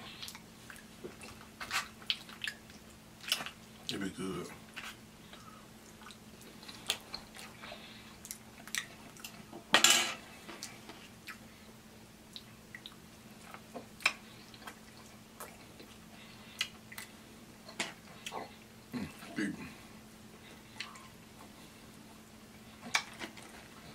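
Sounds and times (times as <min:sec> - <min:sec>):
chewing and mouth clicks: 0:00.1 - 0:04.0, 0:04.7 - 0:09.5, 0:10.5 - 0:11.4, 0:12.3 - 0:18.7, 0:20.7 - 0:21.5.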